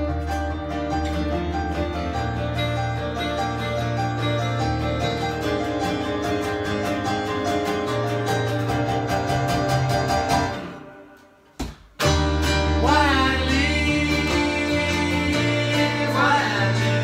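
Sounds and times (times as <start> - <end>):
acoustic guitar: 0.0 - 17.0
electric keyboard: 0.0 - 17.0
men singing: 12.7 - 17.0.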